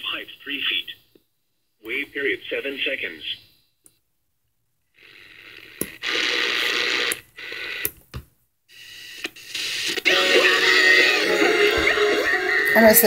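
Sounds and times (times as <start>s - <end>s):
radio static hiss: 0.0s - 1.2s, 1.8s - 3.7s, 5.0s - 7.9s, 8.7s - 13.0s
music broadcast on radio: 5.0s - 7.9s, 8.7s - 13.0s.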